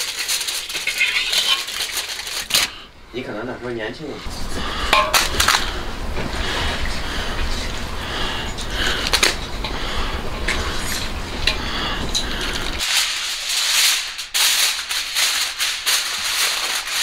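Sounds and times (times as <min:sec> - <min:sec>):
aluminium foil crinkling: 0:00.0 - 0:02.9, 0:12.4 - 0:17.0.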